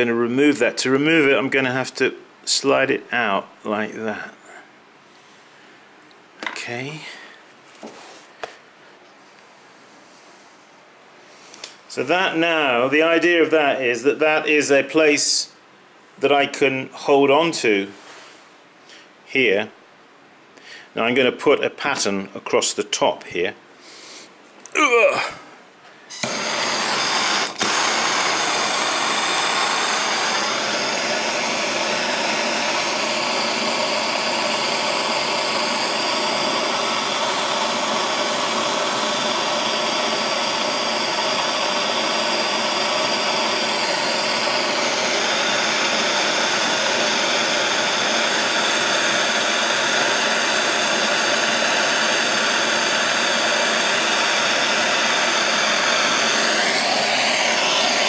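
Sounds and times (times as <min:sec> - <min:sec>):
gas blowtorch hissing roar: 0:26.1 - 0:58.0.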